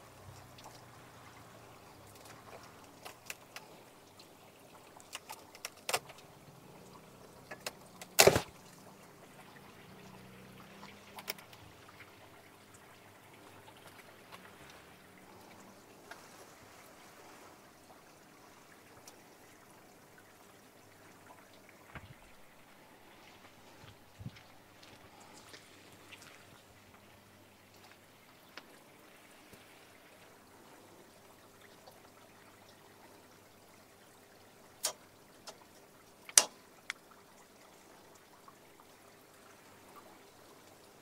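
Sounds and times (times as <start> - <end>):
water trickling: 0.0 - 41.0
small clicks: 36.3 - 37.0.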